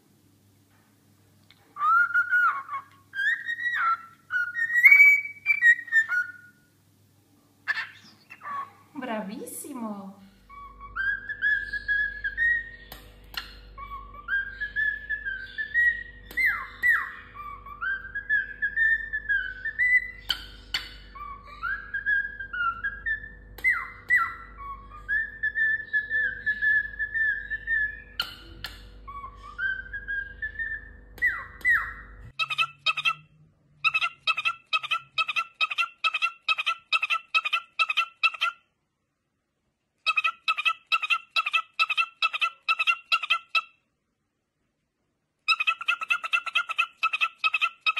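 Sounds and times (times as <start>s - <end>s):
faint steady hum: 0.0s - 47.9s
bird whistling a tune: 1.8s - 6.6s, 10.5s - 12.8s, 13.8s - 33.2s.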